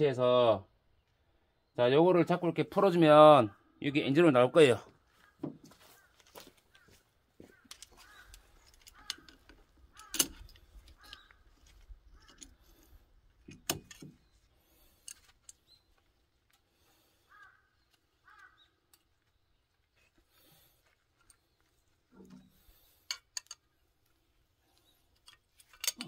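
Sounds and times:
crows cawing: 5.1s - 13.0s, 16.8s - 19.0s
pliers clicking on metal: 7.7s - 11.2s, 25.2s - 26.0s.

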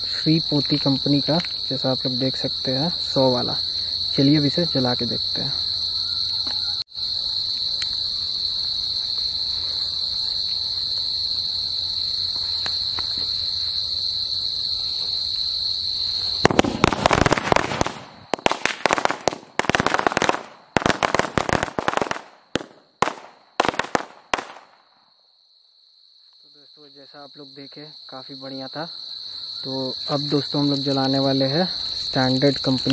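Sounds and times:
crickets chirping: 0.0s - 32.9s
firecracker string popping: 16.4s - 24.8s.

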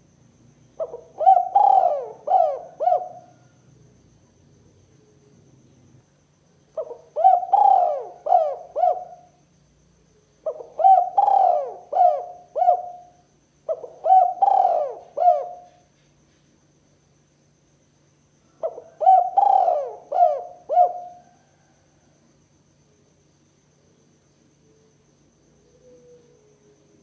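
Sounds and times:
dove cooing: 0.8s - 3.5s, 6.8s - 9.3s, 10.4s - 15.8s, 18.6s - 21.7s, 25.6s - 26.8s.

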